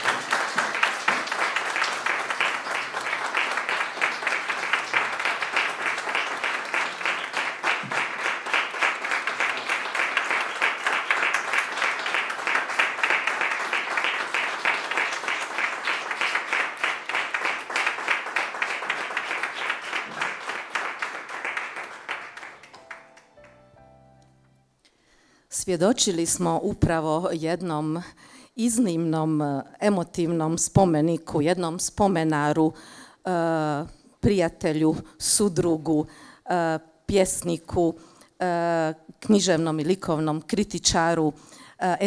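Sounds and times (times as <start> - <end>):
audience applauding: 0.0 - 23.7.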